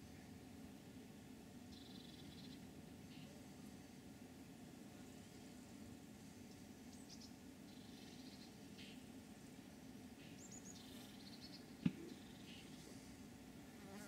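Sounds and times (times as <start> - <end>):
low steady hum: 0.0 - 14.0
small birds chirping: 1.7 - 3.4, 6.4 - 13.2.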